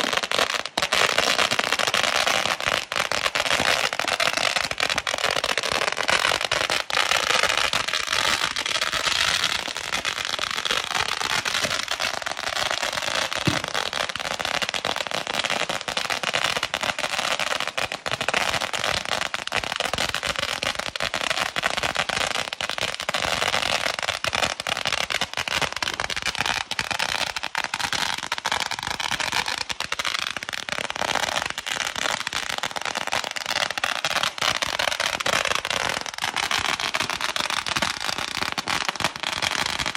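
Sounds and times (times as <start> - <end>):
fireworks crackling pops: 0.0 - 39.9
fireworks hissing: 13.4 - 14.1.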